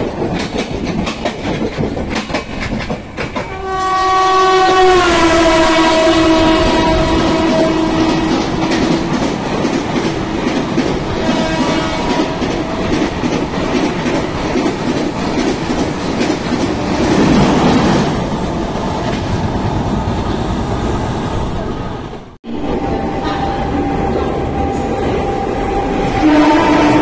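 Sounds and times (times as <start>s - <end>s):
wheels clacking over rail joints: 0.0s - 4.0s, 7.3s - 19.4s
train coaches passing: 0.0s - 27.0s.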